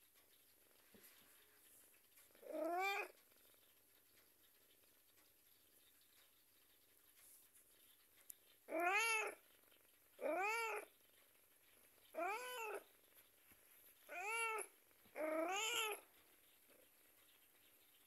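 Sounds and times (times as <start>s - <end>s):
cat meowing: 2.4s - 3.1s, 8.7s - 9.4s, 10.2s - 10.9s, 12.2s - 12.9s, 14.1s - 16.1s.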